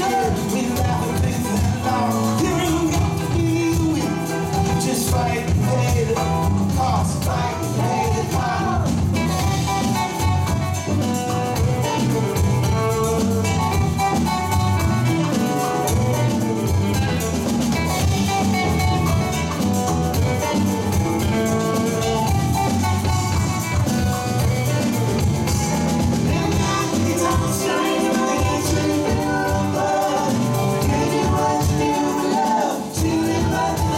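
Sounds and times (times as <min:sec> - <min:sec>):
rock band playing: 0:00.0 - 0:33.9.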